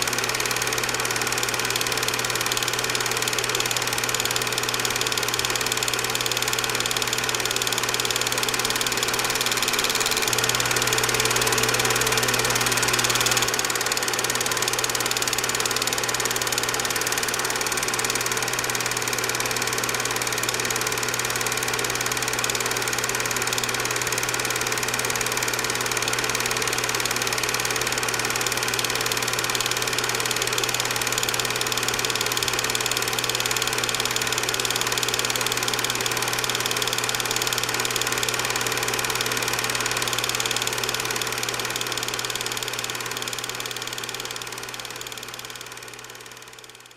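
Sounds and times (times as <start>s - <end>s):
mechanical running drone: 3.6s - 17.2s.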